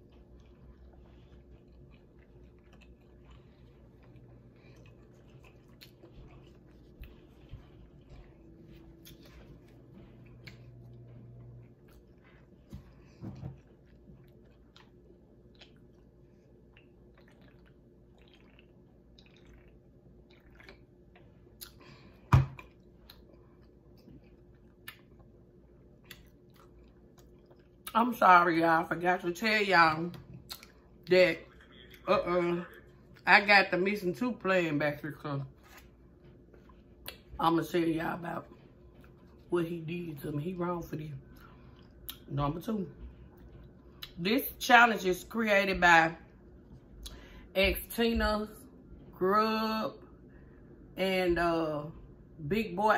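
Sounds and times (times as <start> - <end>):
person chewing food: 0.0 - 27.9, 30.2 - 33.2, 35.5 - 37.4, 38.5 - 39.5, 41.2 - 42.3, 43.0 - 44.2
faint low hum: 0.0 - 52.9
wet mouth clicks and smacks: 30.5 - 30.8.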